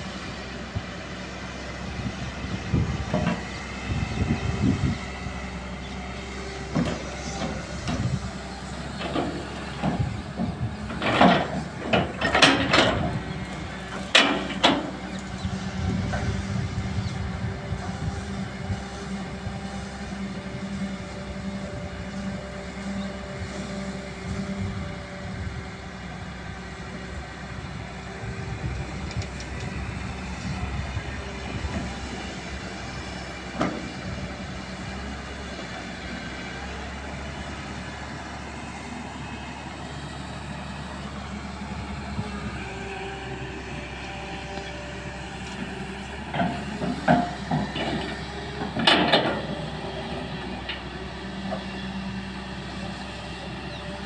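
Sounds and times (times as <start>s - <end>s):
excavator diesel engine running: 0.0s - 54.0s
excavator bucket clunks and scrapes: 2.7s - 3.6s, 6.7s - 16.4s, 33.4s - 34.2s, 45.3s - 50.9s.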